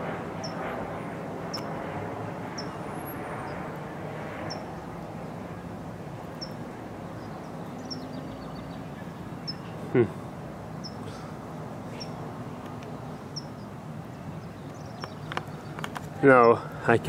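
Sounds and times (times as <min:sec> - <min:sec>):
distant traffic rumble: 0:00.0 - 0:17.0
bird chirping: 0:01.5 - 0:01.7, 0:02.5 - 0:02.8, 0:04.4 - 0:04.8, 0:06.3 - 0:10.1, 0:10.7 - 0:11.3, 0:11.9 - 0:12.3, 0:13.1 - 0:16.6.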